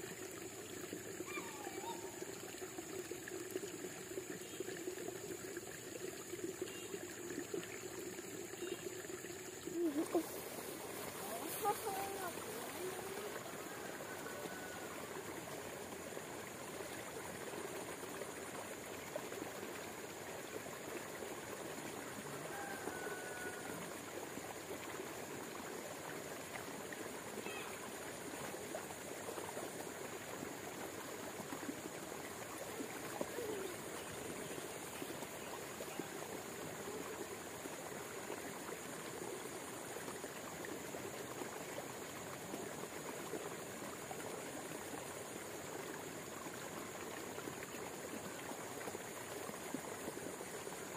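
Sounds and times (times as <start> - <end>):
flowing water rushing: 0.0 - 50.9.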